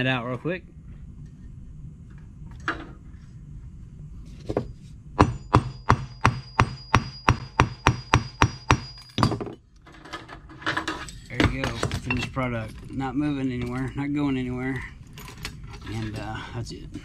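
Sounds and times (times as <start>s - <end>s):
hammer striking metal on anvil: 5.2s - 9.6s.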